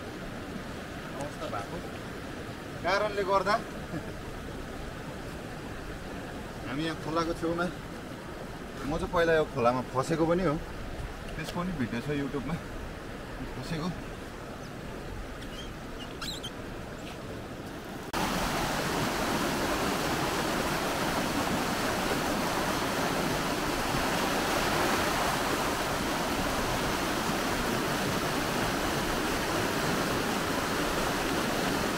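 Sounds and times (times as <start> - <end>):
stream rushing over stones: 0.0 - 31.9
faint high chirps: 15.4 - 17.2.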